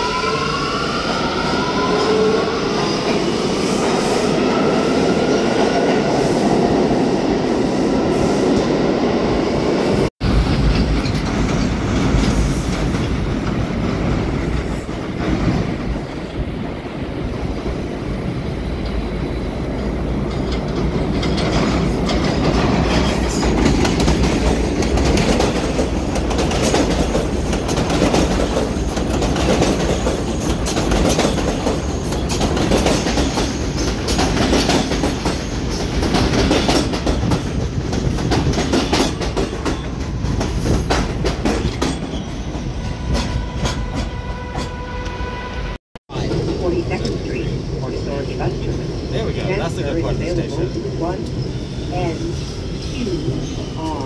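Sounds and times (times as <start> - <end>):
subway train rumbling: 0.0 - 54.0
clickety-clack over rail joints: 10.4 - 16.4, 19.7 - 45.2.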